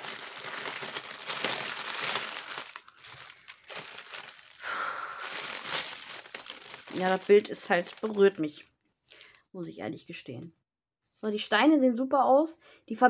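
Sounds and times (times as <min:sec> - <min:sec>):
plastic wrapping crinkling: 0:00.0 - 0:09.4.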